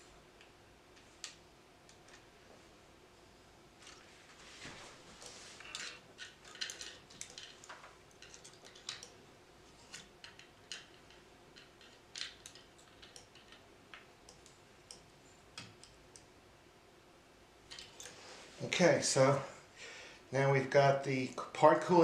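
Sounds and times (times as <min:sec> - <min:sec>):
small bolts and brackets clicking: 0:05.2 - 0:09.2, 0:09.8 - 0:16.3, 0:17.7 - 0:18.2.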